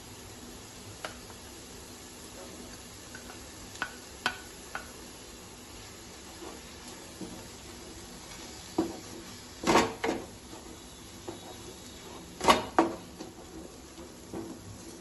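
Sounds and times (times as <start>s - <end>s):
wooden spatula stirring in pan: 0.2s - 15.0s
spatula knocking against pan: 3.1s - 5.0s.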